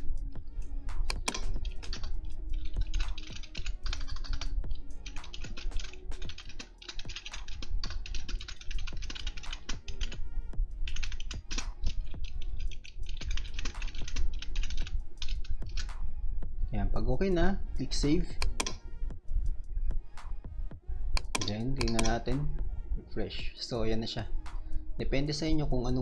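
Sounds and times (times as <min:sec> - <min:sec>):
typing on computer keyboard: 0:01.1 - 0:10.2, 0:10.9 - 0:15.9, 0:21.2 - 0:22.2.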